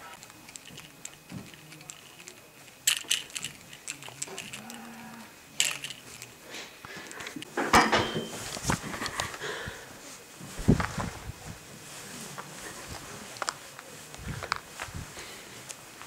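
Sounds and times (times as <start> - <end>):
low moaning voice: 4.2 - 5.4
rustling and knocking: 10.4 - 11.6.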